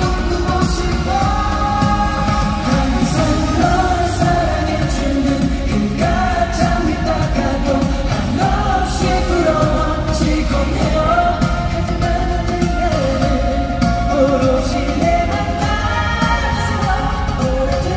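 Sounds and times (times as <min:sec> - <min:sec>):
man singing into microphone: 0:00.0 - 0:17.9
pop accompaniment: 0:00.0 - 0:17.9.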